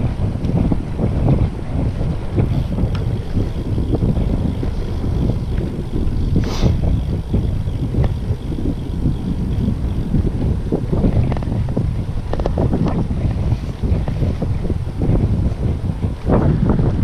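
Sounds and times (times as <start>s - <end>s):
wind buffeting microphone: 0.0s - 17.0s
short hiss: 6.4s - 6.8s.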